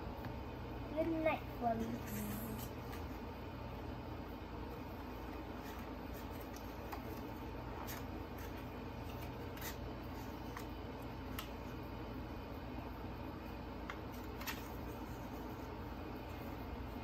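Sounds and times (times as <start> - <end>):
low room hum: 0.0 - 17.0
paper pages rustling: 5.2 - 11.6, 14.1 - 16.5.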